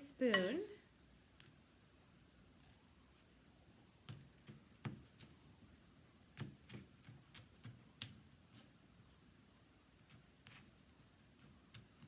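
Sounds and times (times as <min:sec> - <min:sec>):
spoon tapping mixing bowl: 0:00.2 - 0:00.7.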